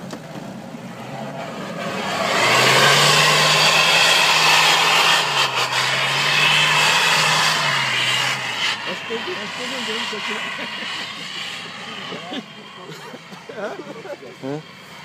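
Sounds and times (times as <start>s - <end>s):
wheels spinning in snow: 0.0s - 15.0s
car engine revving hard: 0.8s - 15.0s.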